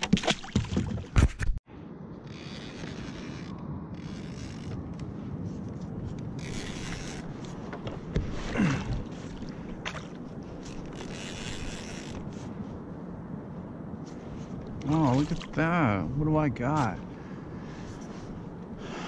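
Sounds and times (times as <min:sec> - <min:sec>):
water washing around kayak: 0:14.7 - 0:15.8.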